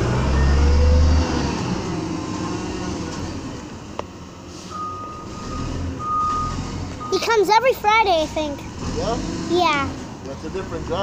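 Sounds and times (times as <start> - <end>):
diesel truck engine running: 0.0 - 11.0
reversing alarm beeps: 4.7 - 7.2.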